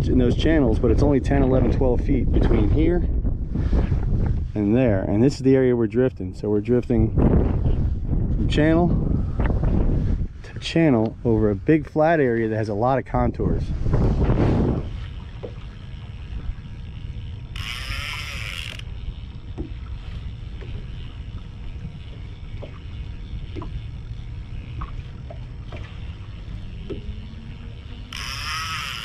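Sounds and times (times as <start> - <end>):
water noise around boat: 0.0 - 29.0
wind: 0.0 - 29.0
high buzzing bursts: 13.9 - 29.0.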